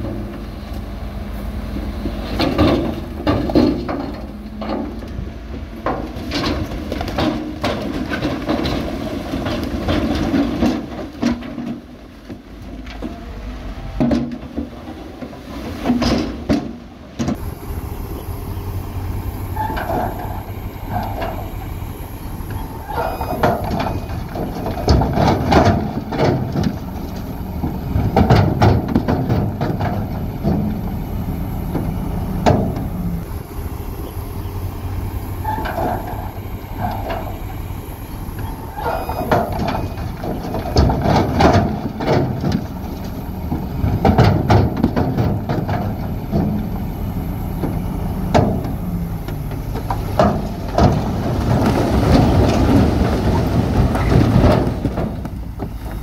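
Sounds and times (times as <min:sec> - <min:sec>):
heavy diesel machinery engine: 0:00.0 - 0:56.0
clattering and scraping: 0:02.0 - 0:13.2, 0:19.6 - 0:31.0, 0:35.4 - 0:37.5, 0:38.1 - 0:46.8, 0:47.6 - 0:56.0.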